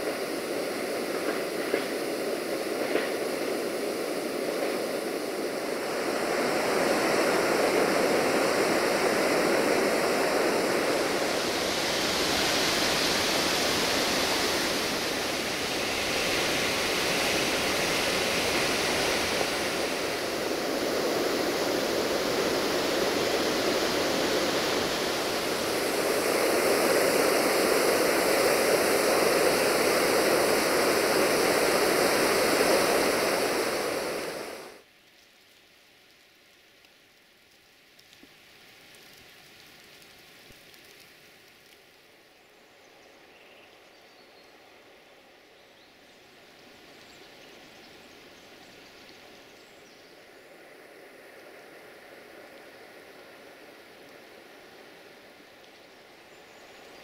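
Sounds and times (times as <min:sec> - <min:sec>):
waterfall rushing: 0:00.0 - 0:34.8.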